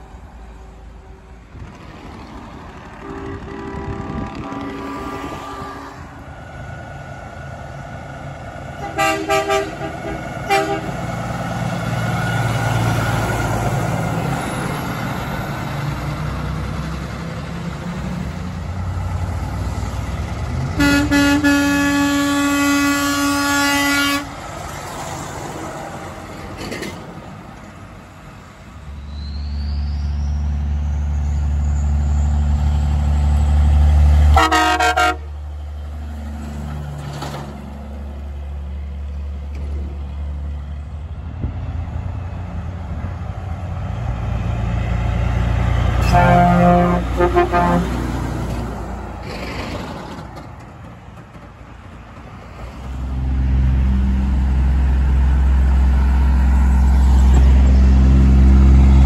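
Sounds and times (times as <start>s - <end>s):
truck diesel engines: 0.0s - 59.0s
truck air horn blasts: 3.0s - 6.3s, 8.8s - 11.0s, 20.8s - 24.4s, 34.3s - 35.3s, 46.0s - 48.2s.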